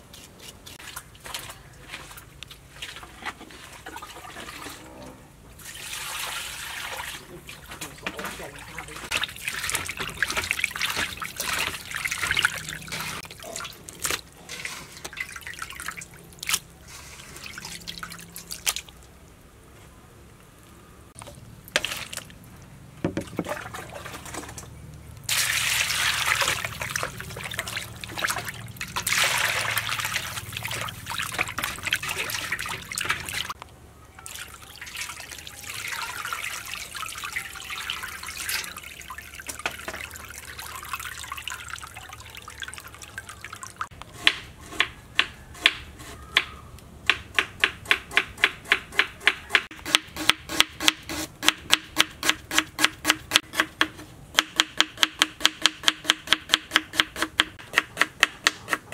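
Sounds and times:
stream of water running: 0:00.0 - 0:19.3, 0:21.1 - 0:33.6, 0:34.2 - 0:44.0
water splashing and trickling: 0:00.0 - 0:19.5, 0:20.6 - 0:44.0.

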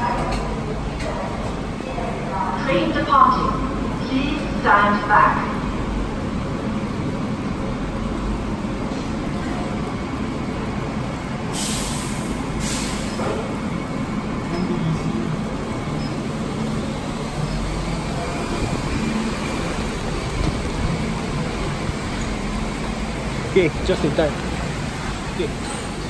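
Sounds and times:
low rumble of rail station: 0:00.0 - 0:26.0
short hisses of air: 0:11.6 - 0:13.2.

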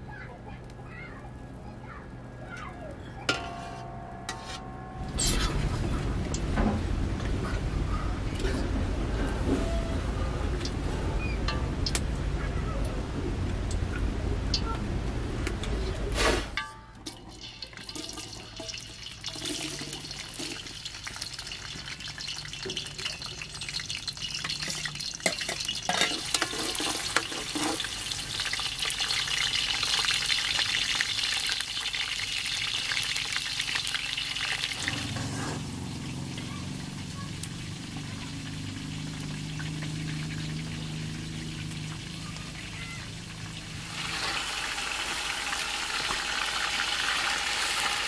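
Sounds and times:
low hum: 0:03.2 - 0:17.1
food sizzling in a pan: 0:17.2 - 0:48.0.

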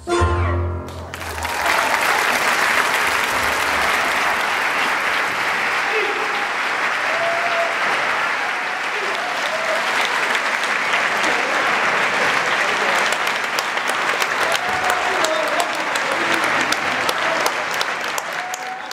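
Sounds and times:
audience applauding: 0:00.9 - 0:18.9
short cheers: 0:01.2 - 0:11.7, 0:14.2 - 0:18.9.

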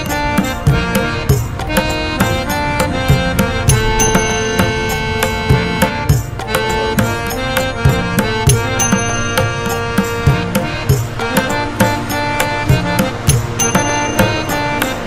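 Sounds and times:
instrumental music with drum beat: 0:00.0 - 0:15.0.

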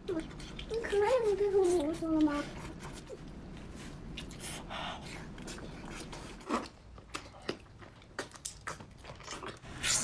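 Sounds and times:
wet chewing and mouth sounds: 0:00.0 - 0:10.0.

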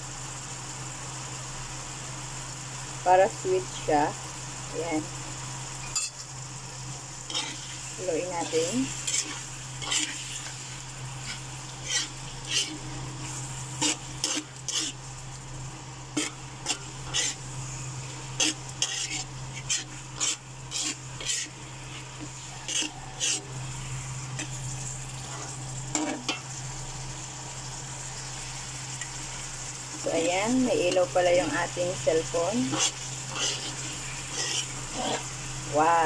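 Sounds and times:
sauce sizzling: 0:00.0 - 0:36.0
metal spatula scraping a wok: 0:05.8 - 0:06.3, 0:07.2 - 0:15.5, 0:16.1 - 0:26.6, 0:29.9 - 0:35.5.

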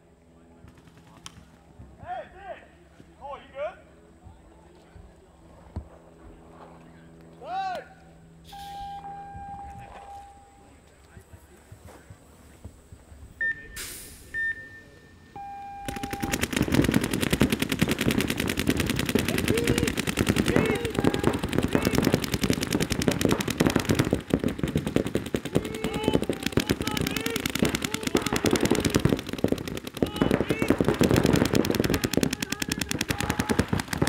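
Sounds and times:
electronic beeps: 0:08.5 - 0:10.7, 0:13.4 - 0:16.4
paintball markers firing rapidly: 0:15.9 - 0:34.0
players shouting: 0:19.2 - 0:22.9, 0:25.4 - 0:34.0.

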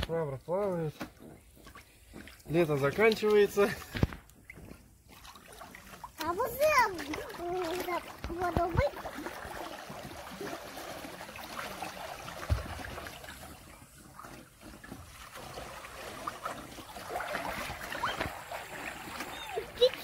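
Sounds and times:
pool water sloshing: 0:00.1 - 0:20.0
mop scrubbing pool wall: 0:00.6 - 0:20.0
dull thump: 0:12.4 - 0:12.9.

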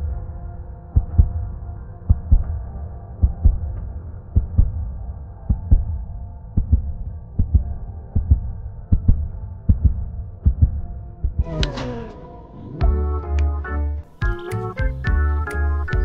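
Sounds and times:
steady low hum: 0:00.0 - 0:16.0
heartbeat double thump: 0:01.0 - 0:01.5, 0:02.1 - 0:02.6, 0:03.2 - 0:04.9, 0:05.5 - 0:06.0, 0:06.6 - 0:12.0, 0:12.8 - 0:13.2.

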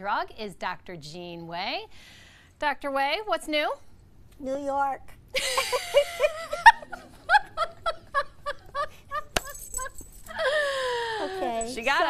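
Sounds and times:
woman laughing: 0:05.4 - 0:11.8.

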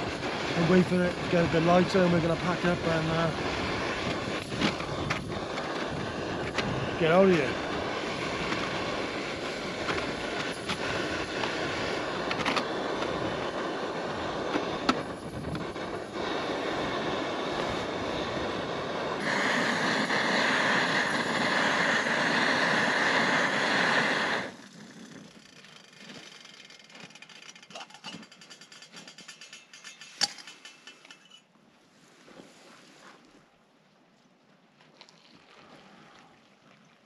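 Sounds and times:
camping stove hissing: 0:00.0 - 0:26.4.

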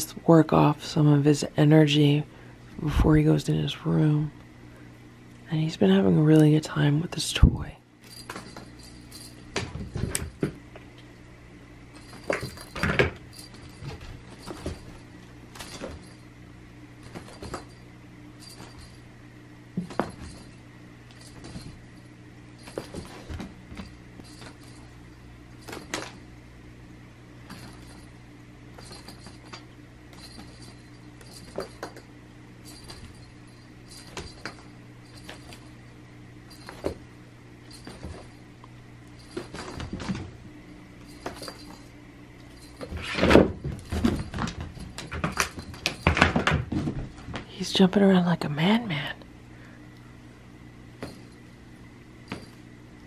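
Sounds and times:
steady low hum: 0:00.0 - 0:53.0
cat toy metallic jingling: 0:08.0 - 0:10.4, 0:11.9 - 0:16.3, 0:17.0 - 0:17.8, 0:18.4 - 0:19.0, 0:19.8 - 0:26.3, 0:27.5 - 0:28.2, 0:28.8 - 0:35.8, 0:36.5 - 0:37.0, 0:37.6 - 0:38.5, 0:41.0 - 0:46.1.

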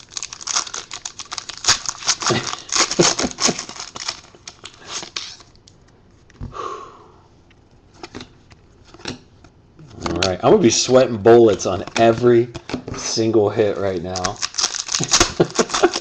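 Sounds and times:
foil wrapper crinkling and tearing: 0:00.0 - 0:05.6, 0:13.7 - 0:16.0.

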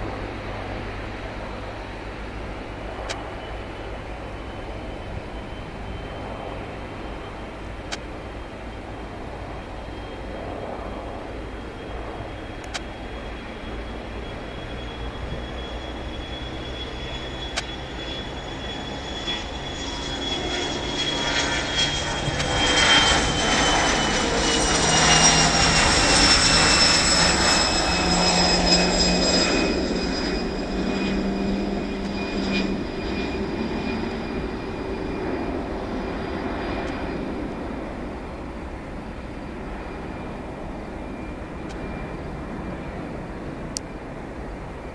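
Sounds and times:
jet engines roaring with high whine: 0:00.0 - 0:44.9.

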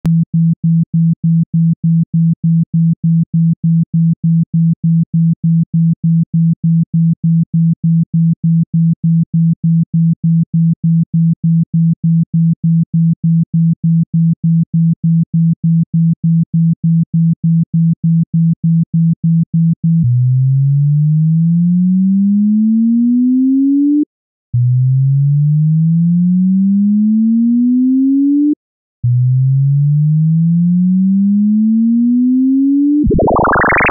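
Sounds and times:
pulsing low sine tone: 0:29.0 - 0:33.9
rising tone sweeps: 0:33.0 - 0:33.9.

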